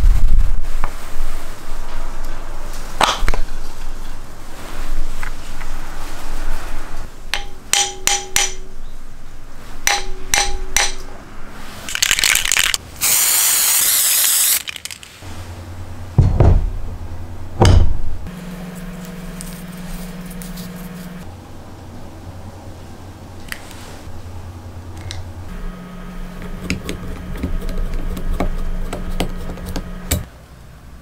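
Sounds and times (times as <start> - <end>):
low hum: 15.3 - 23.5, 24.1 - 30.3
heavy thumps: 16.2 - 17.0.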